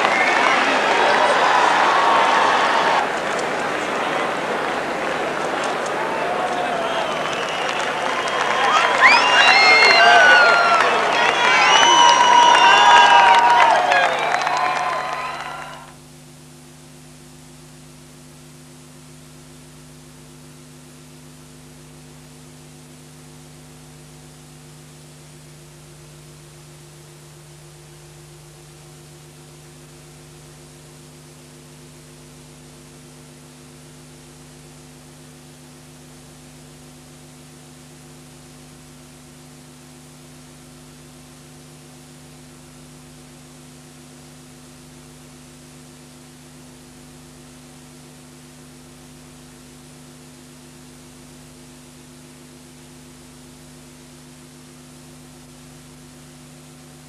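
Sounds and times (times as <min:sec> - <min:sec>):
electrical mains hum: 0:00.0 - 0:57.0
tape hiss: 0:00.0 - 0:57.0.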